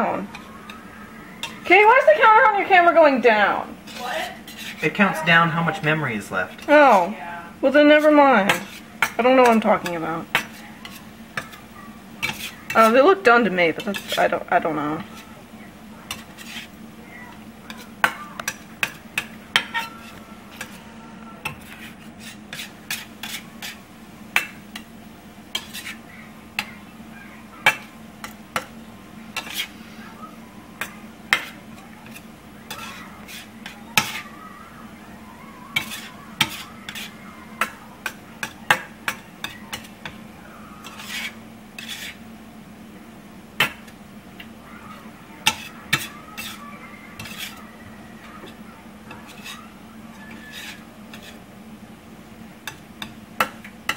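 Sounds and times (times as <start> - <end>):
metal spatula scraping frying pan: 3.4 - 7.1, 7.7 - 11.6, 12.2 - 14.4, 16.1 - 16.8, 17.7 - 20.8, 21.4 - 24.9, 25.5 - 26.0, 29.3 - 29.9, 30.8 - 34.3, 35.7 - 40.2, 40.8 - 42.2, 45.4 - 47.7, 48.4 - 51.5.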